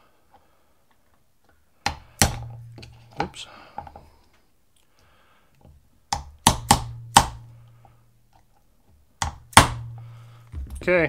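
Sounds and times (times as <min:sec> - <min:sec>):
hammer tapping metal punch: 0:06.1 - 0:07.5.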